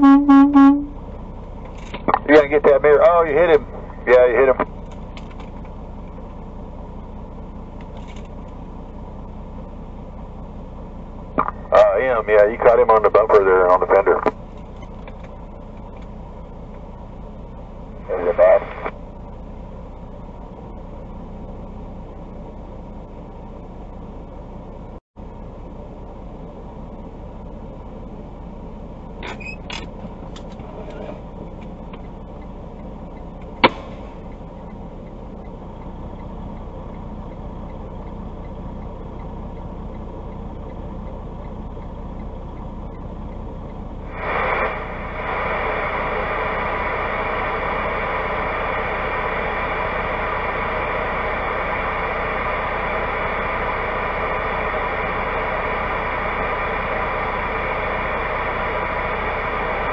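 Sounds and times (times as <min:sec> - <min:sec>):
truck engine idling: 0:00.0 - 0:59.9
steady rushing noise: 0:44.1 - 0:59.9.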